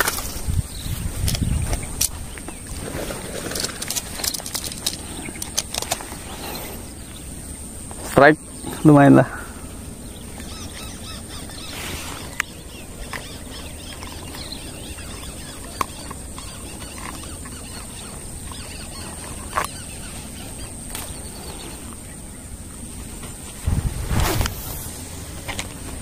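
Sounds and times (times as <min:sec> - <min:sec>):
sharp clicks: 0:03.5 - 0:06.2
faint bird chirps: 0:06.2 - 0:22.6.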